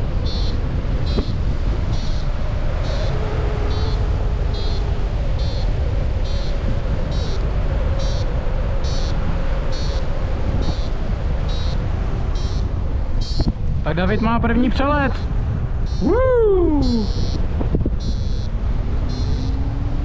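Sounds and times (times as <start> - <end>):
wind noise on microphone: 0.0 - 20.0
high electronic beep: 16.8 - 17.4, 18.0 - 18.5, 19.1 - 19.6.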